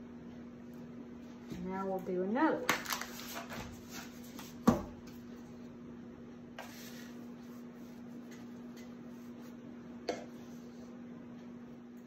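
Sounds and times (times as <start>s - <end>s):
low electrical hum: 0.0s - 12.0s
book thumping on a table: 4.6s - 5.0s.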